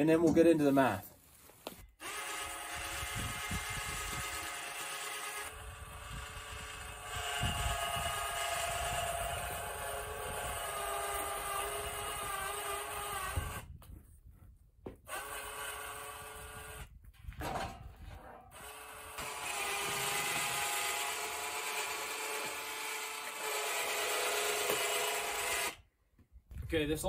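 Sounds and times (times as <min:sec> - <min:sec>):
electric winch motor whining: 0:02.0 - 0:13.6, 0:18.5 - 0:25.8.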